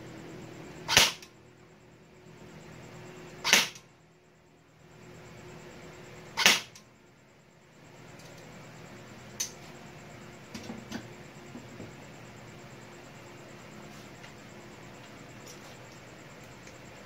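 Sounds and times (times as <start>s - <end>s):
airsoft rifle shots: 0.9s - 1.3s, 3.4s - 3.8s, 6.4s - 6.8s.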